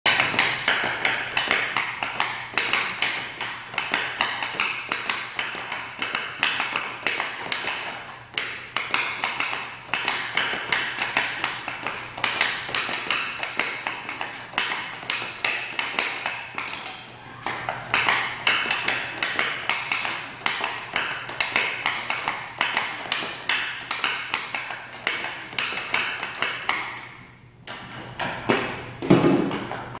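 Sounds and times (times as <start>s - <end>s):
hockey stick tapping puck: 0.1s - 30.0s.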